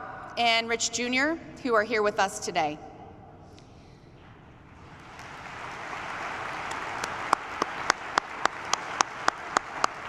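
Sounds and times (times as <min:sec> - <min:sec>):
audience applauding: 0:04.8 - 0:10.0
loud single claps: 0:05.0 - 0:10.0.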